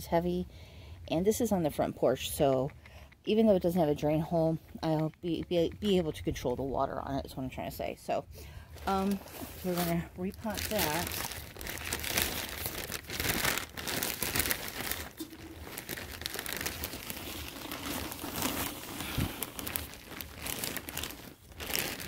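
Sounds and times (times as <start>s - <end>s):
plastic bag crinkling: 8.8s - 22.0s
soil spilling into pot: 14.2s - 19.9s.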